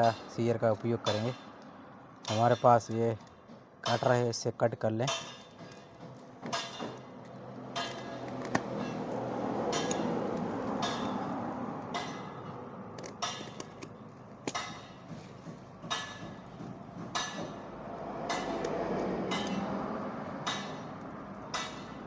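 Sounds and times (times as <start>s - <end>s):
knife and box clicks: 12.9s - 14.8s.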